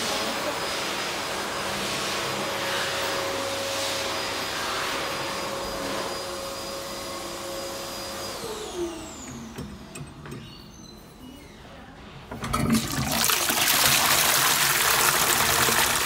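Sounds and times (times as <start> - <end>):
electric hand dryer whirring: 0.0 - 10.0, 12.4 - 16.0
toilet flush lever knock: 12.3 - 13.2.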